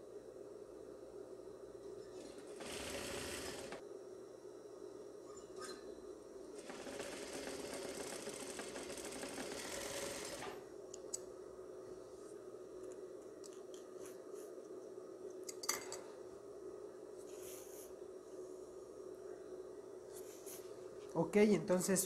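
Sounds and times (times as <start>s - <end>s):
steady hum: 0.0s - 22.0s
sewing machine stitching: 2.2s - 3.8s, 6.6s - 10.6s.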